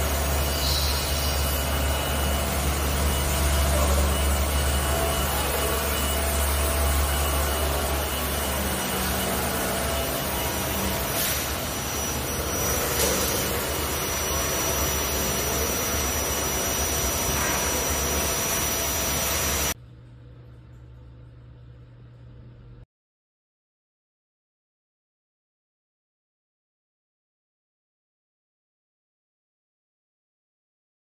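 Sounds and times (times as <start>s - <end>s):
motor humming with high whine: 0.0s - 22.8s.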